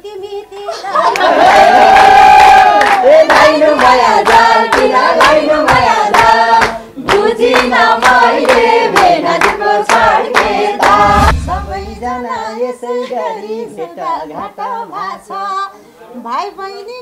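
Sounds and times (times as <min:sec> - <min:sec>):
people singing together: 0:00.8 - 0:16.0
hand clapping in time: 0:02.8 - 0:11.0.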